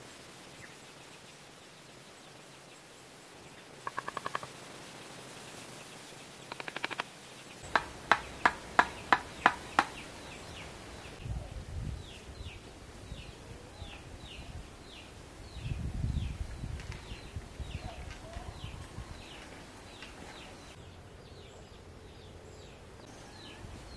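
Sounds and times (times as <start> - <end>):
rapid animal clicking: 3.9 - 4.5, 6.5 - 7.1, 7.8 - 10.0.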